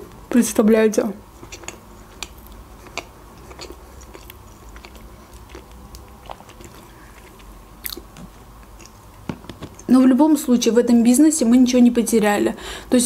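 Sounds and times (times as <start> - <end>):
chewing with mouth closed: 1.3 - 9.2
wet mouth clicks: 1.4 - 8.1.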